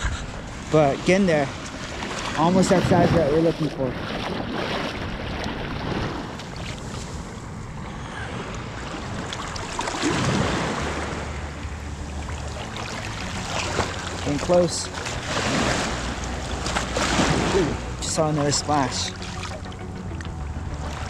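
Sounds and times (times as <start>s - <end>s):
wind rumbling on microphone: 0.0s - 14.2s
surf washing and water sloshing: 0.0s - 21.0s.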